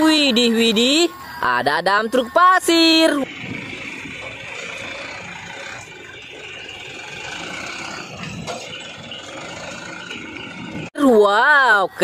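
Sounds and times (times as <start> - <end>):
truck diesel engine running: 0.0 - 12.0.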